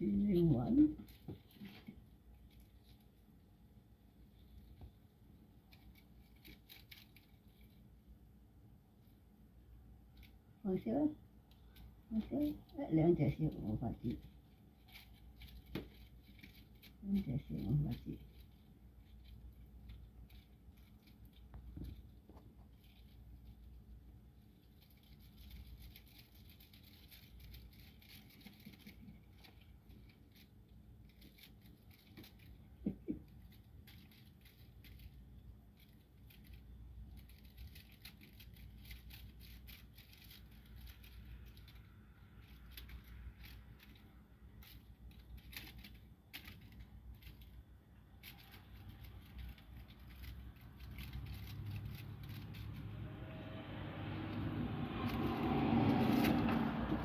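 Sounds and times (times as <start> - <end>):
toy rustling on carpet: 0.0 - 57.0
low rumble: 51.8 - 57.0.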